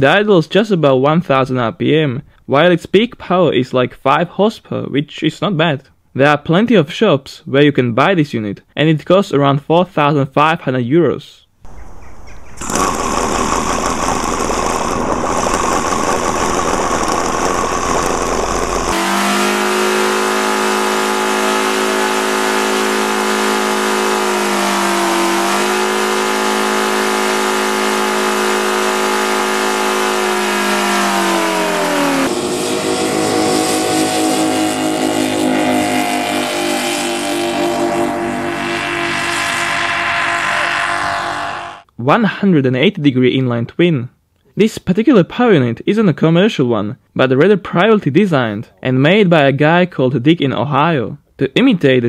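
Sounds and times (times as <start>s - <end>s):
model aircraft engine running: 12.4s - 41.8s.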